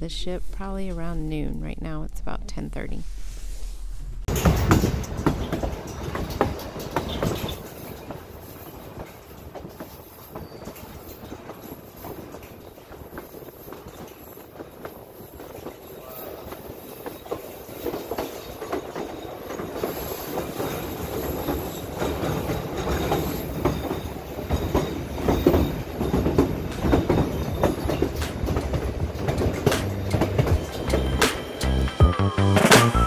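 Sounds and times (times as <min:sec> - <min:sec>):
train wheels clacking on rails: 0:04.3 - 0:32.2
wheel squeal: 0:09.9 - 0:11.3.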